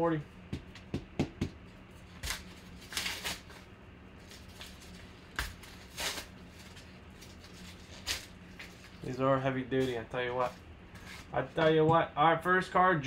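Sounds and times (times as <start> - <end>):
paper envelope tearing: 2.2 - 3.6, 4.2 - 9.0.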